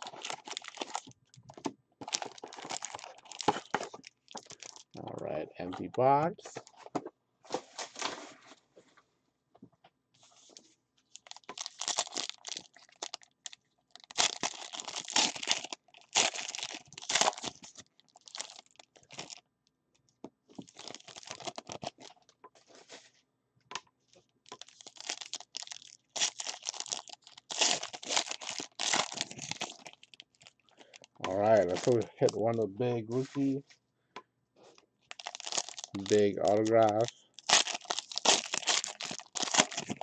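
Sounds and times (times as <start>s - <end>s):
wrappers tearing and crinkling: 0.0s - 5.0s, 11.1s - 19.4s, 20.6s - 22.2s, 24.4s - 32.1s, 35.1s - 40.0s.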